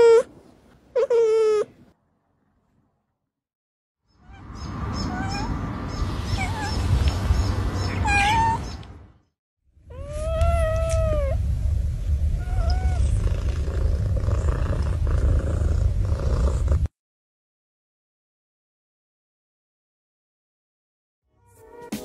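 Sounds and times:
cats meowing: 0:04.2 - 0:06.9, 0:07.8 - 0:08.8, 0:09.9 - 0:11.4, 0:12.4 - 0:13.2
steady low rumble: 0:09.8 - 0:16.9.

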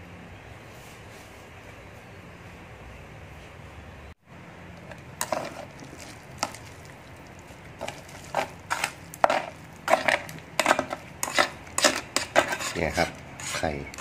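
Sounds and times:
chopsticks scraping a pot: 0:04.8 - 0:06.8, 0:07.8 - 0:14.0.

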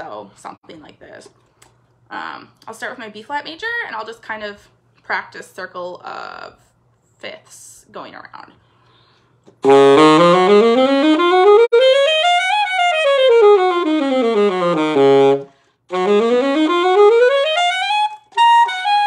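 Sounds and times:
saxophone playing scales: 0:09.6 - 0:19.0.

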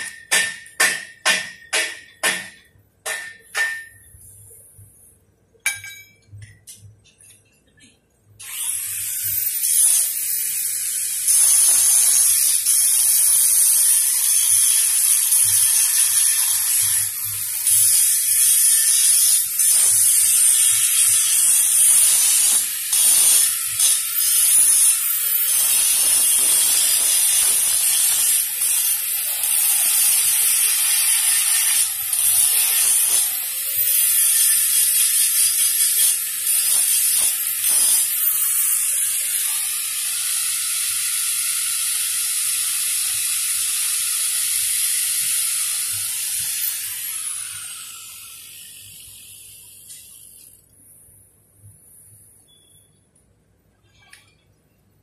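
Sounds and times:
welding arc crackling and hissing: 0:08.6 - 0:50.6.

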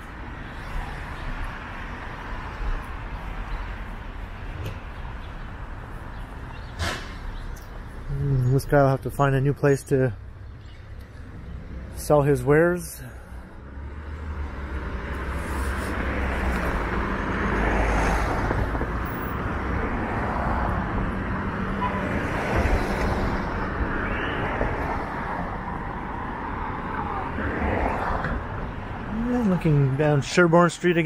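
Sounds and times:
cars passing: 0:00.0 - 0:31.0
wind rumble on microphone: 0:18.1 - 0:19.4.

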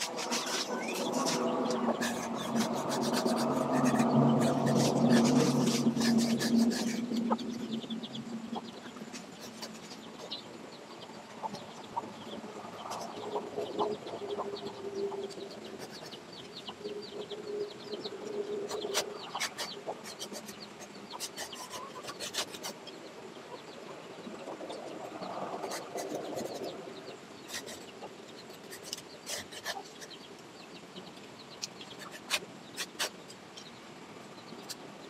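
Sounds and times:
hand saw rasping through branch: 0:00.0 - 0:07.2
chickens clucking: 0:00.0 - 0:33.8.

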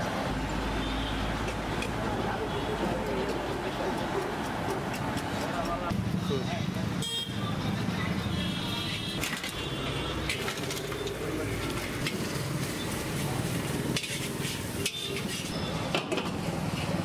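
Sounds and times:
chicken deep-frying in oil: 0:10.7 - 0:15.3
metal ladle scraping pan: 0:13.9 - 0:15.6.

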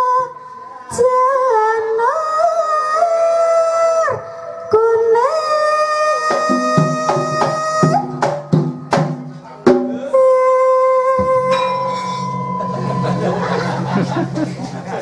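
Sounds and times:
woman singing long high notes: 0:00.0 - 0:08.2, 0:10.0 - 0:12.8
sharp hand drum strokes: 0:06.3 - 0:10.1
low ringing tones: 0:06.6 - 0:15.0.

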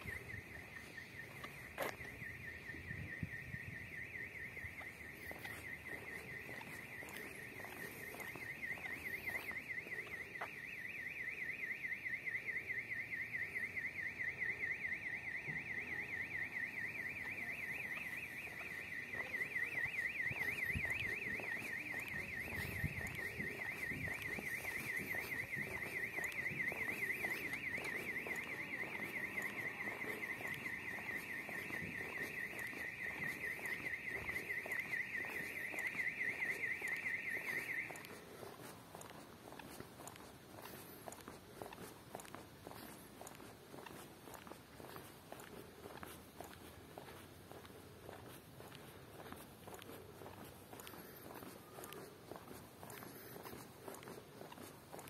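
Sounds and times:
electronic alarm siren warbling: 0:00.0 - 0:38.1.

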